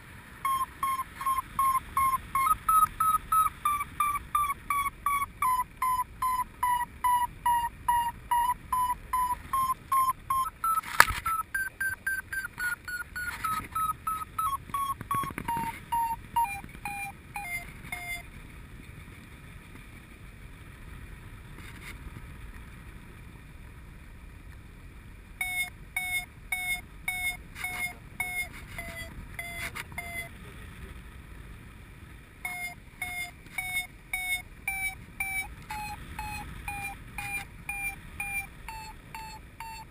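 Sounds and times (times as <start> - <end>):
variometer beeping: 0.4 - 18.3, 25.4 - 30.4, 32.4 - 39.9
sharp click: 10.8 - 11.4.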